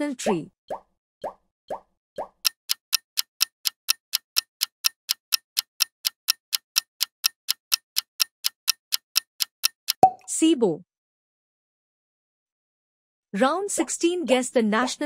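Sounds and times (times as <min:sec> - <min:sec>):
clock ticking: 0:02.2 - 0:10.1.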